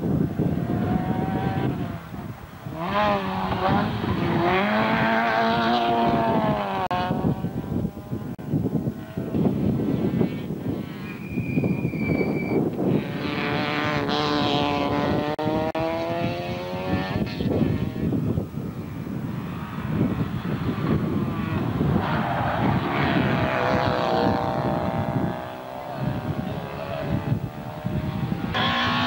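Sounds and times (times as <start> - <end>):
race car engine revving: 2.7 - 7.6, 12.9 - 18.1, 19.4 - 29.0.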